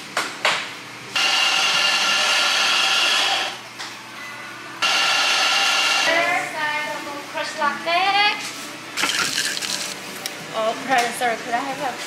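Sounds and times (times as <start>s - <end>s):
coffee grinder running: 1.2s - 3.6s, 4.8s - 6.1s, 9.0s - 10.0s.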